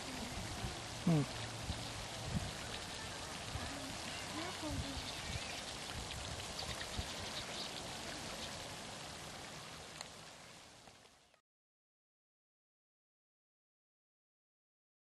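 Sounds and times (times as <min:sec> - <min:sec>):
water drips: 0:00.0 - 0:11.4
water splashing and trickling: 0:00.0 - 0:11.4.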